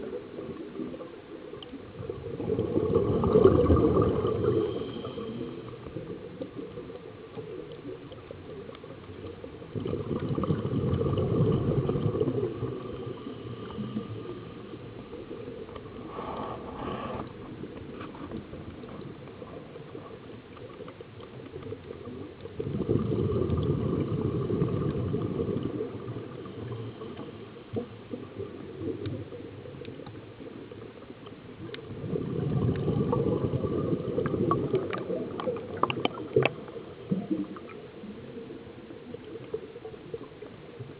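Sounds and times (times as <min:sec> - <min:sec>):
underwater exhaled air bubbling: 0:00.0 - 0:40.9.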